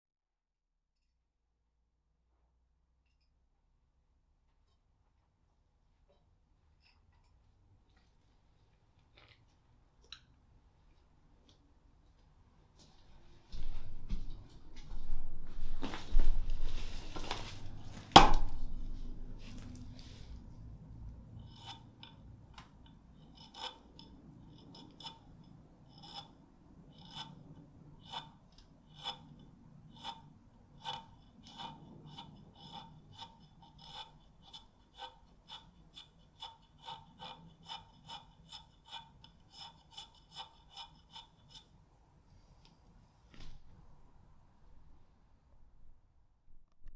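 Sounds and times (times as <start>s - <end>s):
loud knock: 18.1s - 18.7s
pencil scraped against axe: 21.4s - 22.3s, 22.9s - 41.8s.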